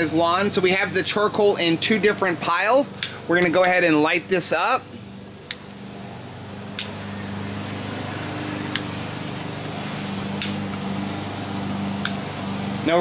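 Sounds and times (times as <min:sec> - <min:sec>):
lawn mower engine running: 0:00.0 - 0:13.0
lighter wand clicks: 0:06.8 - 0:07.0.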